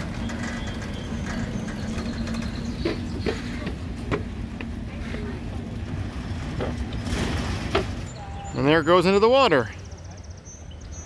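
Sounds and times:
low mechanical hum and rumble: 0.0s - 8.6s.

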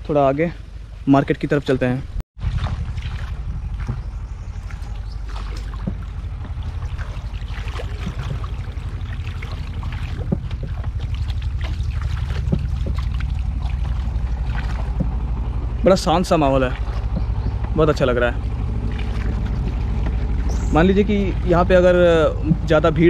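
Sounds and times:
boat engine throbbing: 2.4s - 23.0s
water splashes: 2.4s - 23.0s.

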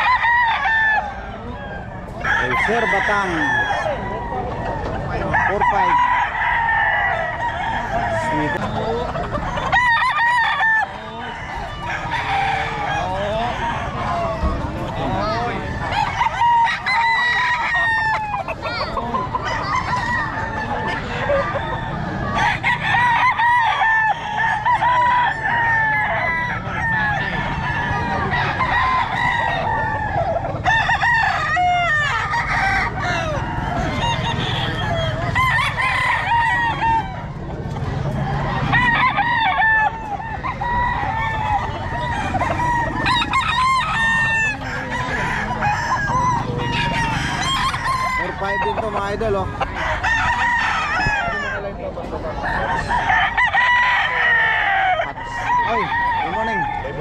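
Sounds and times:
roosters crowing: 0.0s - 57.0s.

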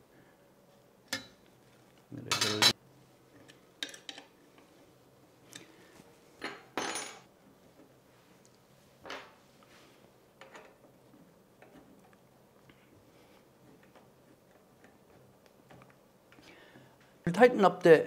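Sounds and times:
metal tools clinking on metal frame: 2.2s - 2.8s.

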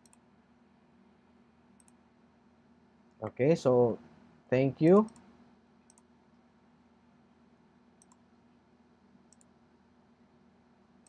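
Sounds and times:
computer mouse clicks: 0.0s - 0.2s, 1.8s - 2.0s, 5.0s - 6.1s, 8.0s - 8.3s, 9.3s - 9.5s
low steady hum: 0.0s - 11.0s.

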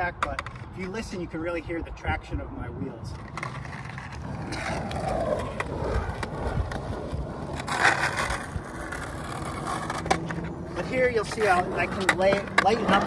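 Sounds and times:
skateboard clicks: 0.2s - 1.0s, 3.1s - 13.0s
skateboard wheels scraping: 3.1s - 13.0s.

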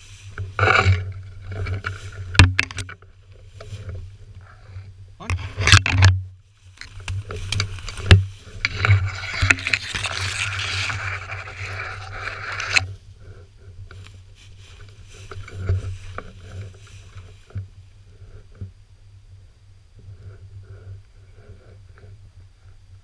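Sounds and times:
dry grass swishing and scraping: 0.0s - 2.4s, 14.0s - 17.6s.

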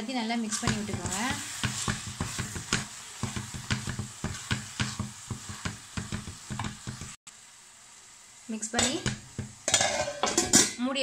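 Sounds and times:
frying sizzle: 0.0s - 11.0s
wooden spatula scraping pan: 0.2s - 7.2s.

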